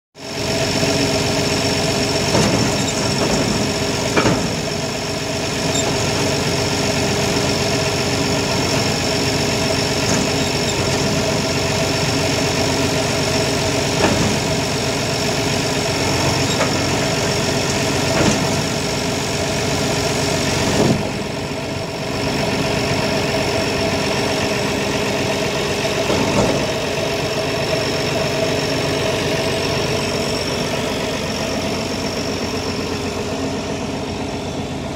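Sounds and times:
engine idling: 0:00.2 - 0:34.9.

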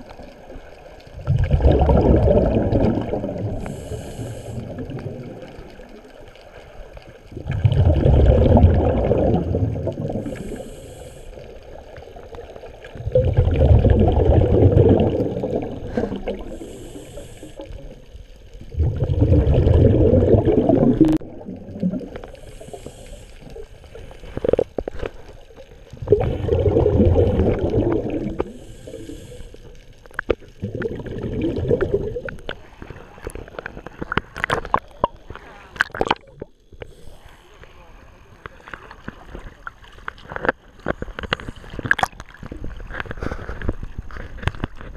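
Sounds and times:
exhaled bubbles gurgling: 0:00.0 - 0:44.9
regulator inhalation hiss: 0:03.5 - 0:04.9, 0:10.2 - 0:11.9, 0:16.0 - 0:17.9, 0:22.2 - 0:24.2, 0:28.2 - 0:30.0, 0:36.8 - 0:37.7
water splashes and knocks: 0:35.8 - 0:36.5.

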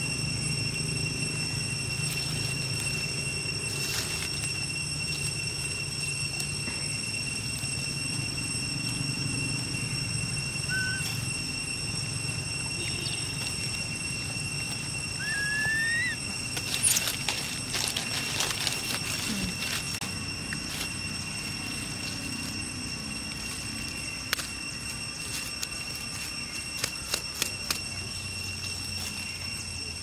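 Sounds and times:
high ringing drone: 0:00.0 - 0:30.0
footsteps in dry leaf litter: 0:02.0 - 0:06.6, 0:13.1 - 0:29.5
short squeaks: 0:15.2 - 0:19.6.

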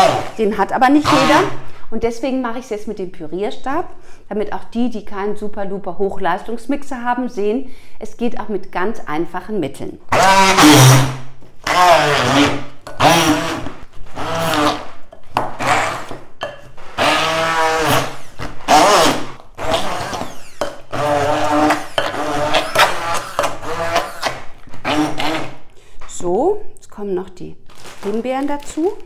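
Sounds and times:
immersion blender motor: 0:00.0 - 0:00.4, 0:10.1 - 0:25.7.

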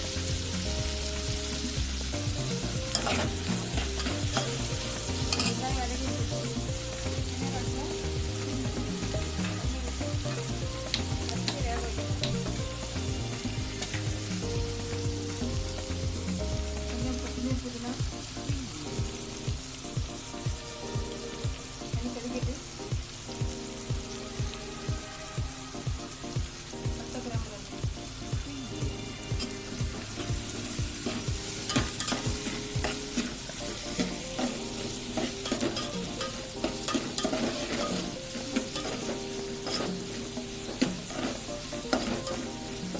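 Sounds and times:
low drum beats: 0:00.0 - 0:17.7
background music with held notes: 0:00.0 - 0:42.9
onions sizzling in oil: 0:00.0 - 0:42.9
steady hiss: 0:00.0 - 0:42.9
metal spoon scraping steel pot: 0:35.2 - 0:40.1.

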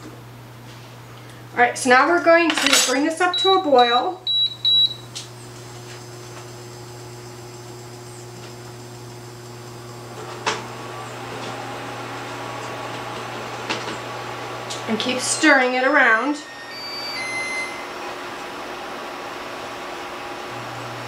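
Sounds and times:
cooktop and fan humming: 0:00.0 - 0:21.0
short high beeps: 0:04.3 - 0:05.0, 0:16.6 - 0:17.9.

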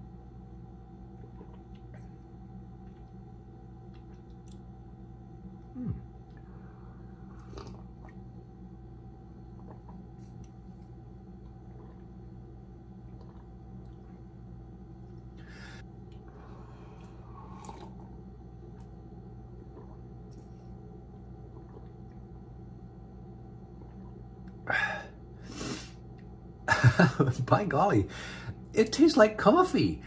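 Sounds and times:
low room hum: 0:00.0 - 0:30.0
sipping coffee: 0:05.9 - 0:08.3, 0:15.3 - 0:20.8.

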